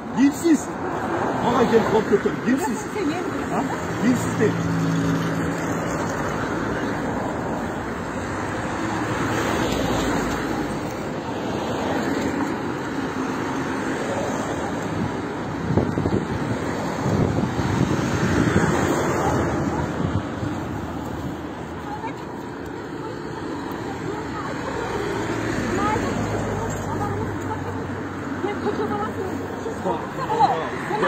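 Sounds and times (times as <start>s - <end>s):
road traffic: 0.0s - 31.0s
wind on microphone: 14.9s - 21.2s.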